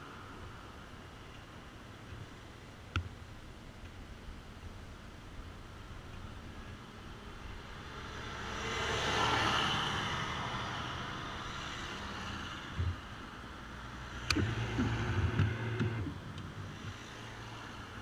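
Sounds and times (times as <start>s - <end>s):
bus passing by: 6.9s - 18.0s
low steady hum: 11.2s - 18.0s
sharp clicks: 14.2s - 17.1s.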